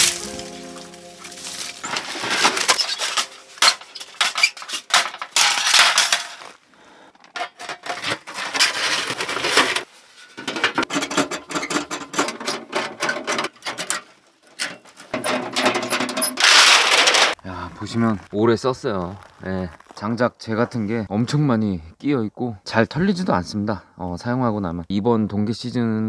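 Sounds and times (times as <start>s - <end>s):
canvas bag rustling: 0.0s - 5.0s
metal panels clattering: 1.5s - 6.5s, 7.4s - 17.4s.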